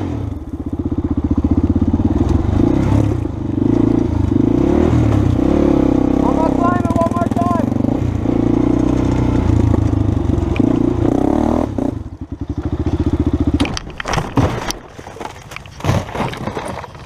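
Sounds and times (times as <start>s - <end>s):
quad engine running: 0.0s - 17.0s
quad rolling over on gravel: 12.4s - 17.0s.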